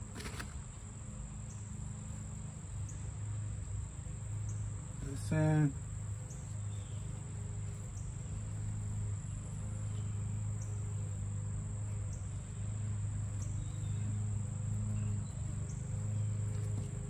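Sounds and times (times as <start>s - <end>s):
insects calling: 0.0s - 17.0s.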